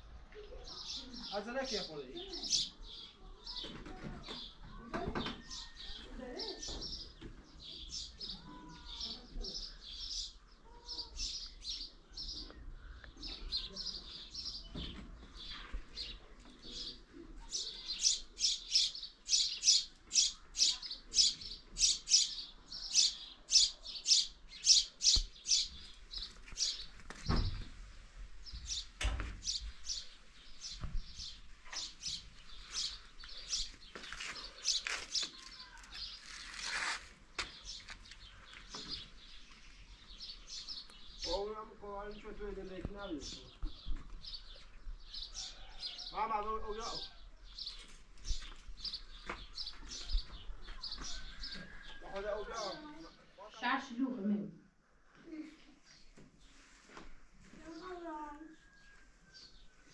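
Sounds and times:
small bird chirping: 0:15.4 - 0:27.0.

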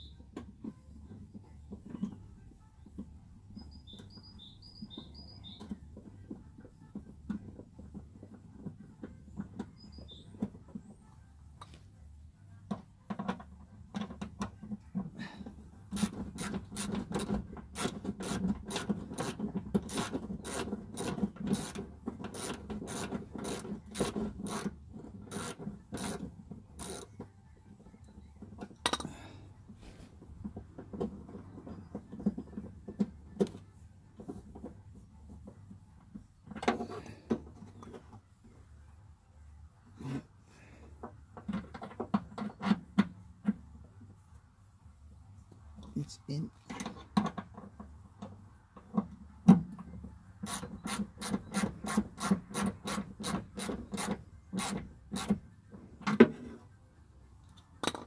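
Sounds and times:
screwdriver rasping on metal: 0:15.9 - 0:27.1, 0:50.4 - 0:55.4.

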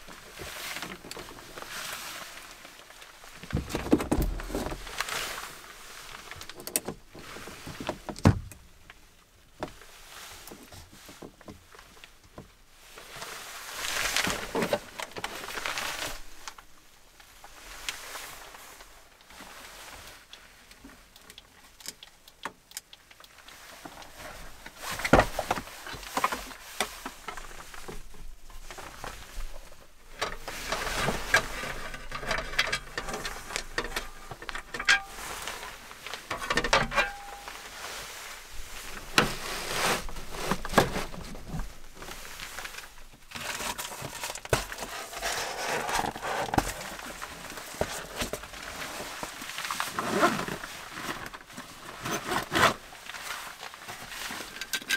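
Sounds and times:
gear case clicks and knocks: 0:03.4 - 0:04.8.

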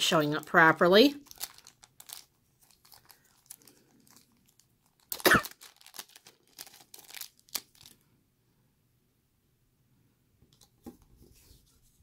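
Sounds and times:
plastic bag crinkling: 0:00.3 - 0:08.0.

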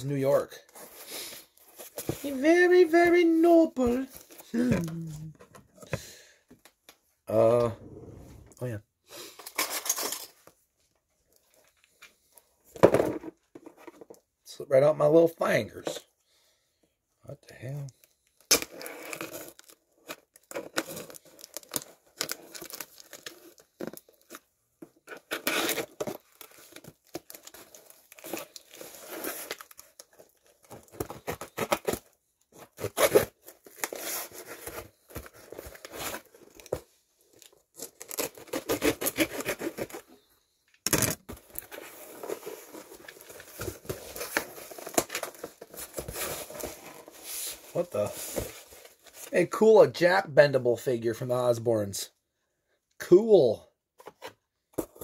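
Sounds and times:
cardboard ripping and crinkling: 0:18.5 - 0:24.4, 0:25.0 - 0:40.1, 0:41.3 - 0:49.3.

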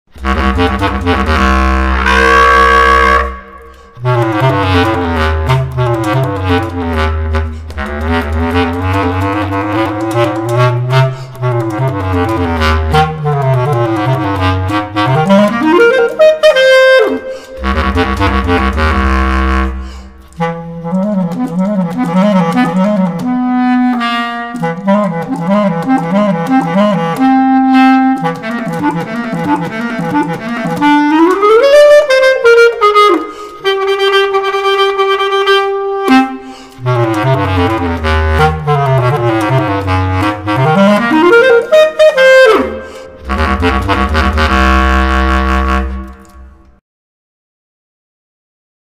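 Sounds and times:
bass clarinet melody: 0:00.1 - 0:46.8
player breathing: 0:03.6 - 0:04.0, 0:17.2 - 0:17.6, 0:19.8 - 0:20.4, 0:33.3 - 0:33.6, 0:36.4 - 0:36.8, 0:42.7 - 0:43.2.

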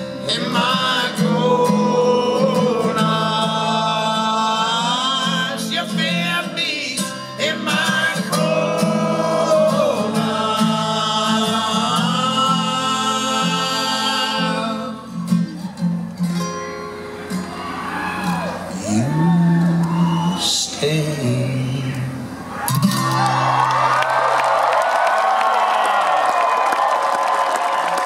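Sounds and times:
strummed acoustic guitar: 0:00.0 - 0:19.1, 0:20.4 - 0:23.5
men singing in harmony: 0:00.2 - 0:15.1.

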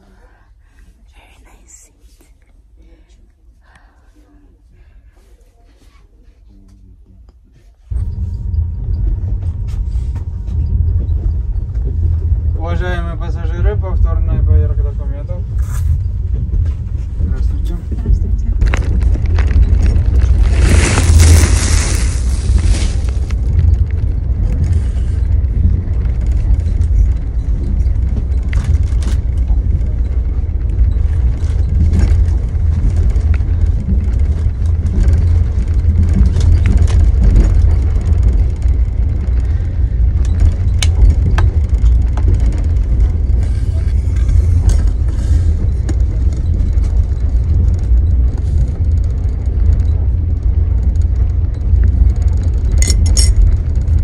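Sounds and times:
train running low rumble: 0:00.0 - 0:54.0.

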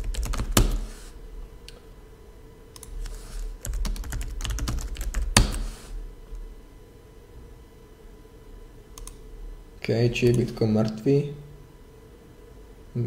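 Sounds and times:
keyboard typing: 0:00.0 - 0:00.9, 0:02.8 - 0:05.8.

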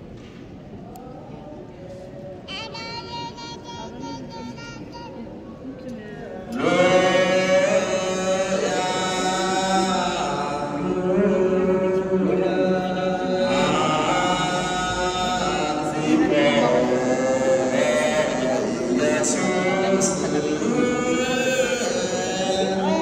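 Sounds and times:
group chanting long held notes: 0:06.5 - 0:23.0.

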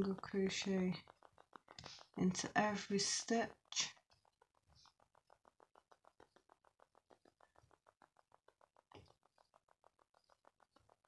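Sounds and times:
faint rapid regular ticking: 0:00.0 - 0:11.0.

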